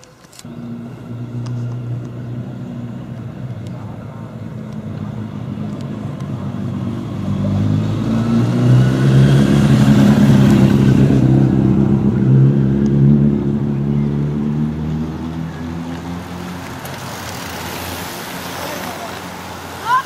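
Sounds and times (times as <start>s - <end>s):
vehicle engine running close by: 0.4s - 20.0s
racing bicycles hissing past: 14.6s - 20.0s.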